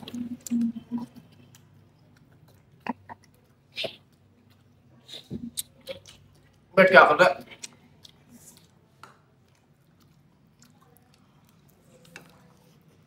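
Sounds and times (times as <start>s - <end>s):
chewing and mouth noises: 0.0s - 6.7s, 7.4s - 13.0s.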